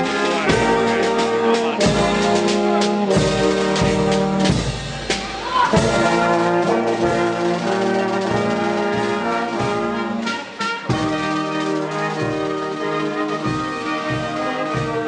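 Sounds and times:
drum and cymbal strikes: 0.0 - 9.9
marching brass band playing: 0.0 - 15.0.

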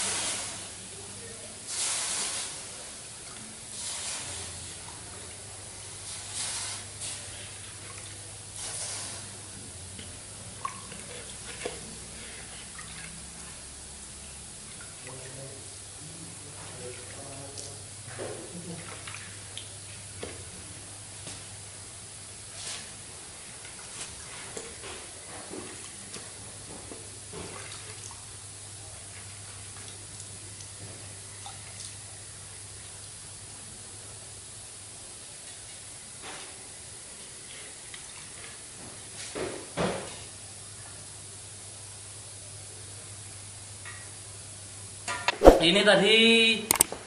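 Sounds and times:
steady hiss: 0.0 - 4.9, 5.6 - 10.5
water sizzling on hot exhaust: 0.0 - 39.3
light drips and ticks: 3.2 - 3.5, 9.9 - 13.6, 14.2 - 15.6, 16.5 - 20.4, 25.6 - 28.2, 29.0 - 32.0, 32.8 - 33.2, 37.4 - 38.6
water splashing and dripping: 10.6 - 11.9.

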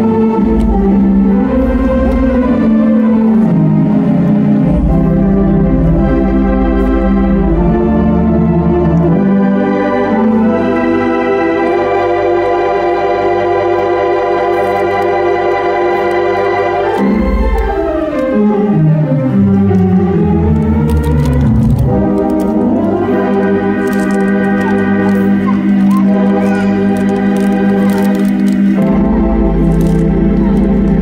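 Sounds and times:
deep pedal bass notes: 0.0 - 31.0
pipe organ chords: 0.0 - 31.0.

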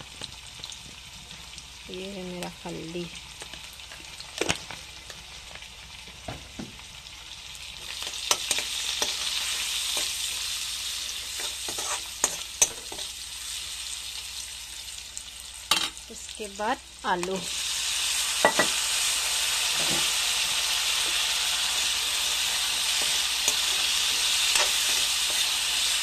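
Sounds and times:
onion sizzling in hot oil: 0.0 - 26.0
steel ladle scraping pan: 11.3 - 13.1, 21.0 - 25.6.

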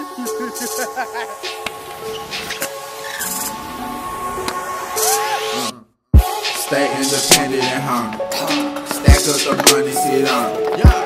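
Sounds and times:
sharp snare: 7.3 - 7.6.

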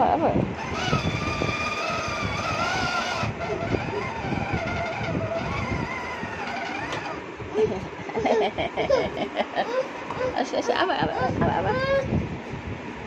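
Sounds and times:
toy electronic engine-revving sound: 0.6 - 7.2.

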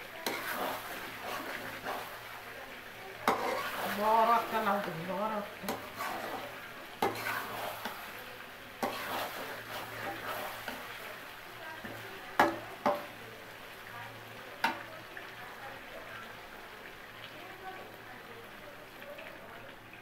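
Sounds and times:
low sizzle of frying: 0.0 - 20.0
metal spatula scraping a pan: 0.1 - 2.3, 3.2 - 8.2, 8.8 - 11.1
spatula clacking against a pan: 0.2 - 2.0, 3.2 - 3.8, 5.6 - 8.0, 8.8 - 10.9, 11.8 - 13.2, 14.6 - 14.9.

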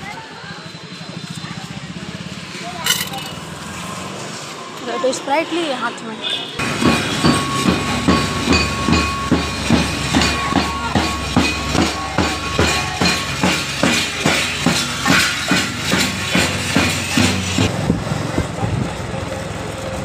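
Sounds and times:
busy street background: 0.0 - 20.0
rhythmic beating: 6.6 - 17.7.

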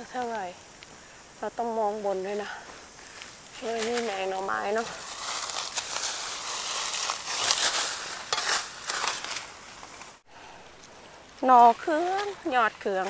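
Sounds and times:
dry leaves crunching: 2.7 - 10.2.

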